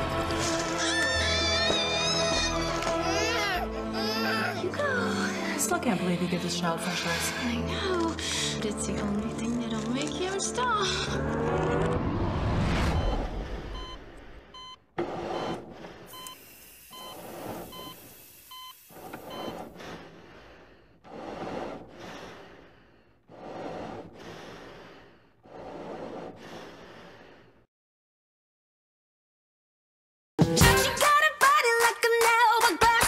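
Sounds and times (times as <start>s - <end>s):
heart monitor beeping: 13.0s - 19.7s
slow heavy breathing: 19.0s - 27.7s.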